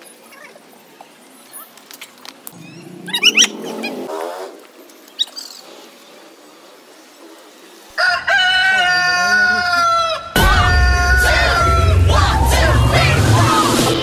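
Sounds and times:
faint outdoor background: 0.0 - 14.0
loud drawn-out crowing call: 8.0 - 13.8
music with deep bass beat: 10.4 - 14.0.

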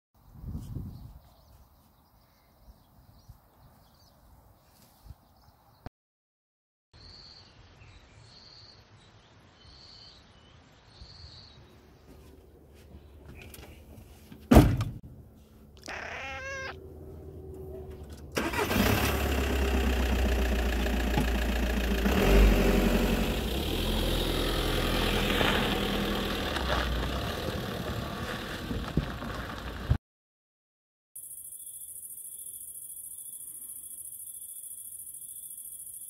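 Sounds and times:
vehicle door slamming: 14.5 - 15.0
van engine running: 16.8 - 30.0.

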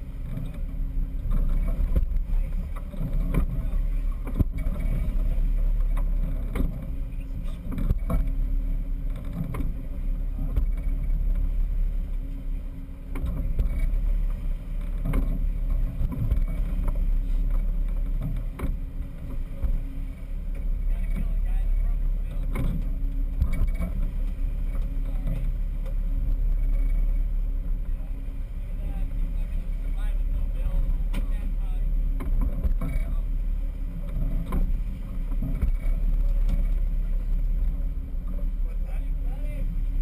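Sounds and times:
boat engine rumble: 0.0 - 40.0.

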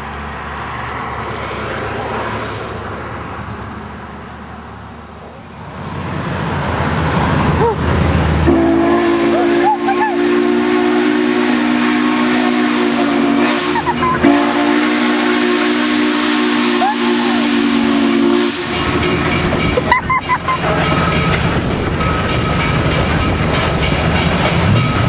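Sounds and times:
steady rushing steam hiss: 0.0 - 19.8
steam locomotive chime whistle: 8.5 - 19.6.

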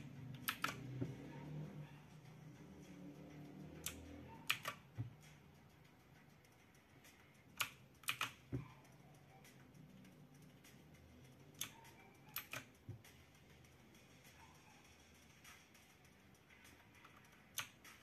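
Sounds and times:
clicky keyboard keys: 0.3 - 1.2, 3.8 - 5.3, 7.5 - 13.1, 17.0 - 18.0.

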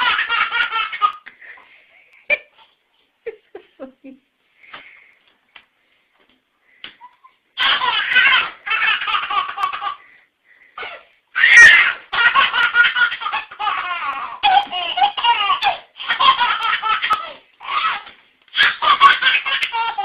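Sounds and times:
baby laughing: 0.0 - 1.3, 7.0 - 10.2, 10.8 - 20.0.

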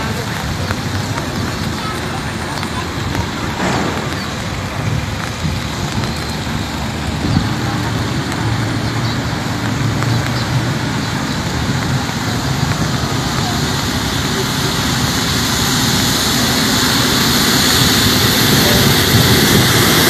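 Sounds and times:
road traffic: 0.0 - 20.0
wind: 0.0 - 20.0.

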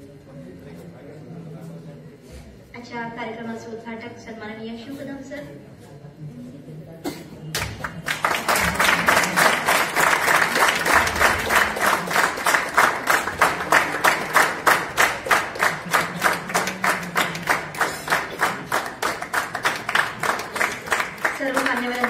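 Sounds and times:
audience clapping in unison: 7.5 - 22.0.

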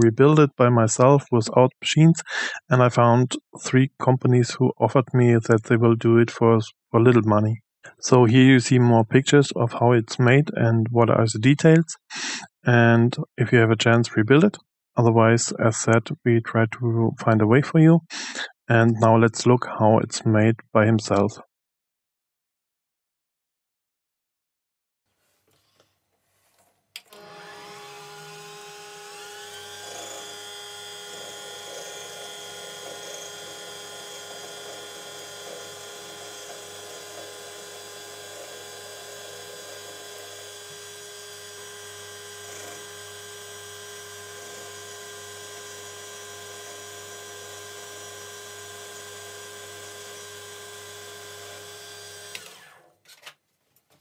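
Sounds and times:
lathe motor whining: 27.1 - 52.8.

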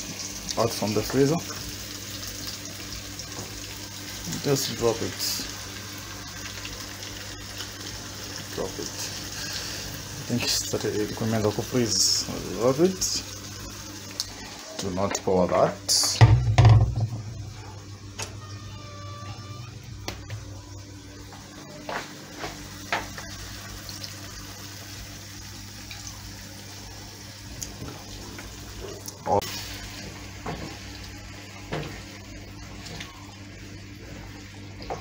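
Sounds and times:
steady low hum: 16.2 - 25.6.

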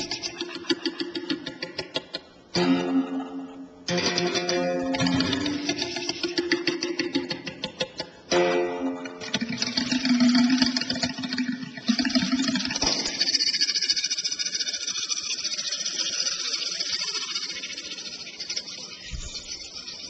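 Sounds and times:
high-pitched hissing buzz: 12.4 - 20.0.

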